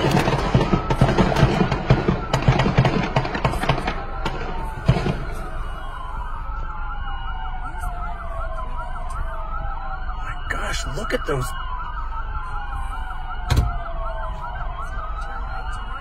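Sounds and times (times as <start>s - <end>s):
gunshots: 0.0s - 5.3s
police sirens wailing: 0.0s - 16.0s.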